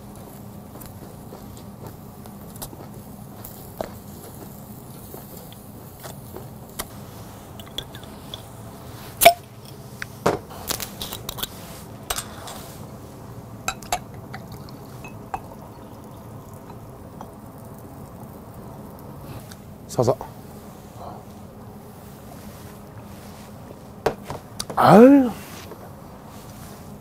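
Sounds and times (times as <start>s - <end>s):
drink pouring: 13.6s - 19.3s
glass bottles clinking: 13.7s - 15.6s.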